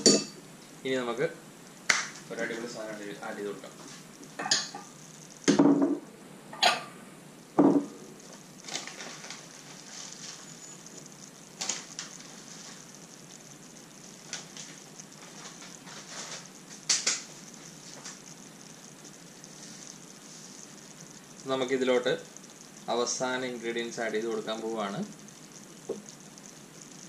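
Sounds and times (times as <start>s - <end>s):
ceramic bowls knocking on countertop: 5.5s - 6.0s, 7.6s - 7.9s.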